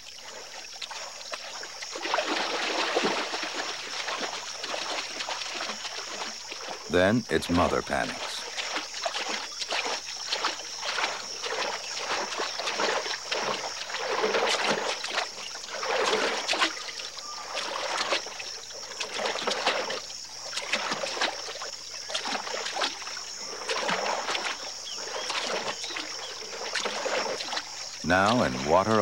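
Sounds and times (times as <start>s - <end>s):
animals splashing through water: 0.0s - 29.0s.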